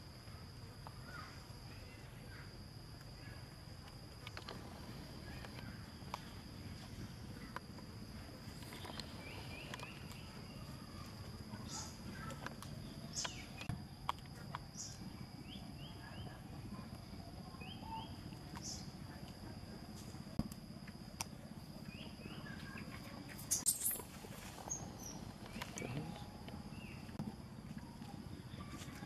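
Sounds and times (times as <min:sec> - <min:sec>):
faint chirps: 0:00.0 - 0:29.0.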